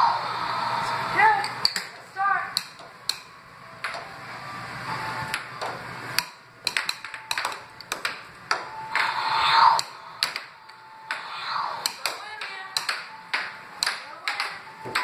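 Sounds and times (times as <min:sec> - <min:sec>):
air hockey puck clacking: 0:02.5 - 0:04.1, 0:05.3 - 0:15.0.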